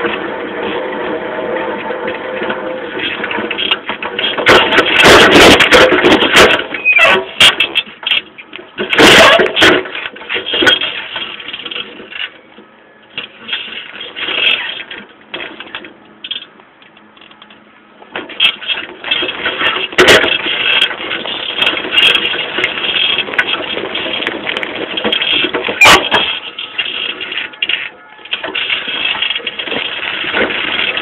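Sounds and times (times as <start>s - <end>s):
bicycle frame and chain clattering: 1.6s - 12.5s, 13.1s - 31.0s
bicycle tyre noise: 17.1s - 31.0s.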